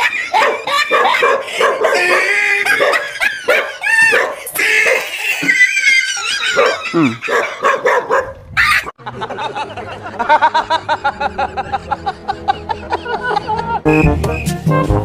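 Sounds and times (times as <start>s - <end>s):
dog barking and yelping: 0.0s - 8.9s
men laughing heartily: 0.0s - 14.0s.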